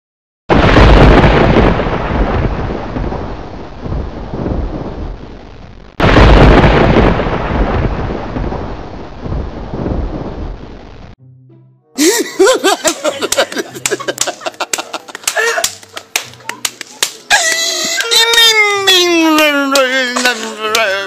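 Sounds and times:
thunder rumbling: 0.5s - 11.2s
thunderclap: 0.5s - 11.2s.

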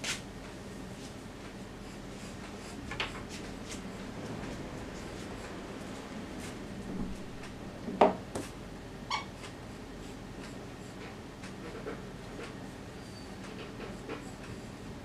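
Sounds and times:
short high-pitched squeak: 9.1s - 9.3s.

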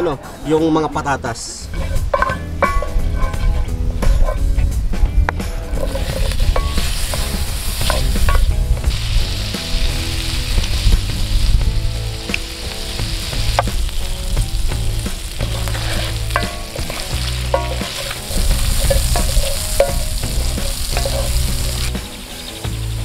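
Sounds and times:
potatoes sizzling in hot fat: 5.6s - 23.0s.

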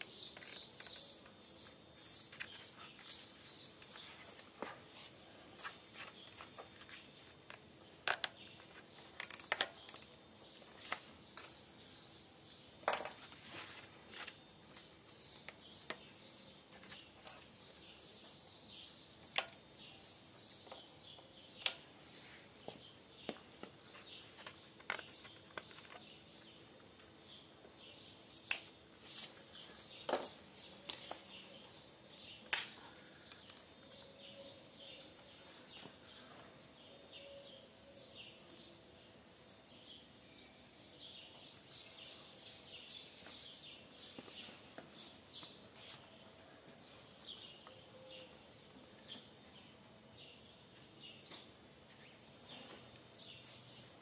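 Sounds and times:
sharp plastic snaps: 19.2s - 19.7s, 21.5s - 21.9s, 28.4s - 28.8s, 32.1s - 33.7s.

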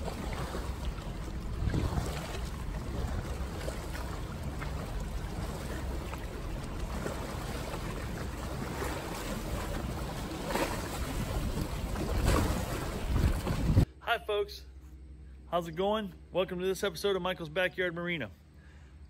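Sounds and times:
water churning past boat: 0.0s - 13.9s
wind buffeting microphone: 0.0s - 13.9s.

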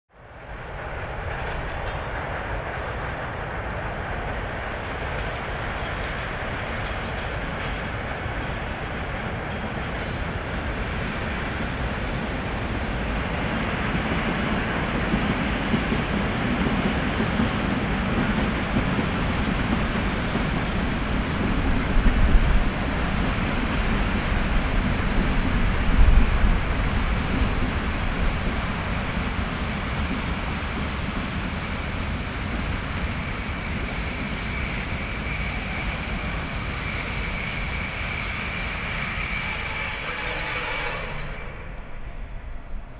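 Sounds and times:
freight train rolling: 0.2s - 42.9s
thin high whine: 16.7s - 42.9s.

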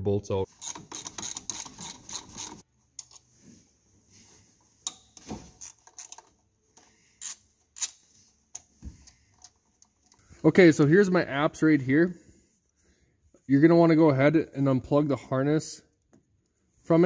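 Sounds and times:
hand ratchet clicking: 0.6s - 2.6s.

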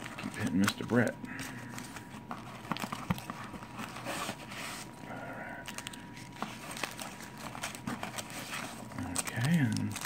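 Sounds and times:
hands rustling packing peanuts: 0.0s - 10.0s
peanuts clicking against cardboard: 9.0s - 10.0s.

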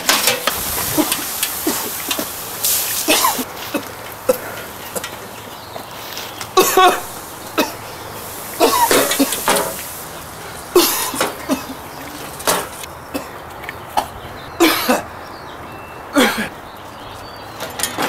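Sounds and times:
man coughing: 3.1s - 5.1s, 6.6s - 7.9s, 8.6s - 9.5s, 10.7s - 11.9s, 14.0s - 15.1s, 16.2s - 16.6s.

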